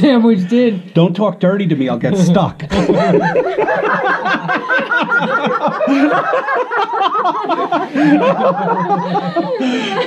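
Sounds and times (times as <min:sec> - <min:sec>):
people laughing: 0:02.0 - 0:10.0.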